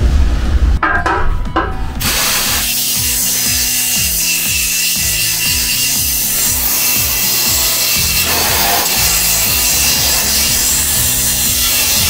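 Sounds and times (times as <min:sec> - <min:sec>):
background music: 0:00.7 - 0:12.0
pneumatic tool cutting steel: 0:02.0 - 0:12.0.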